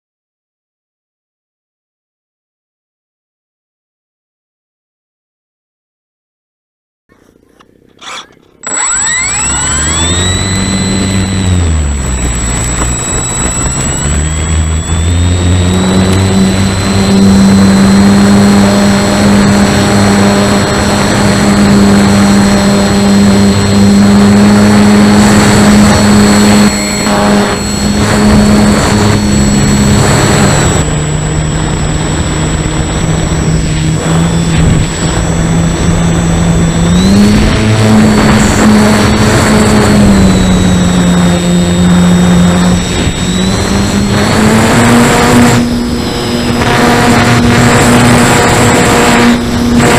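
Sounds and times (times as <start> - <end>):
electric motor and propeller: 7.9 - 49.9
wind rushing over microphone: 9.9 - 49.9.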